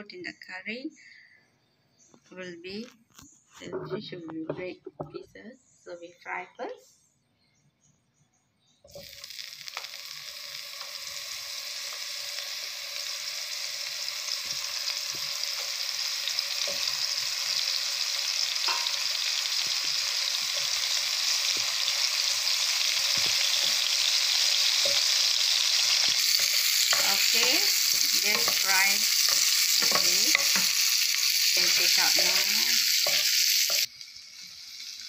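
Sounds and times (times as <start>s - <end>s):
oil popping: 8.9s - 33.9s
fish sizzling in hot oil: 8.9s - 35.0s.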